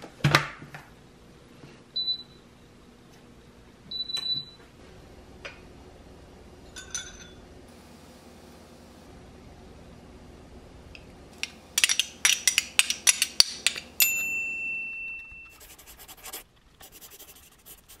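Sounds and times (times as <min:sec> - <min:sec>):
glass clinking: 0:06.7 - 0:07.4, 0:11.8 - 0:15.6.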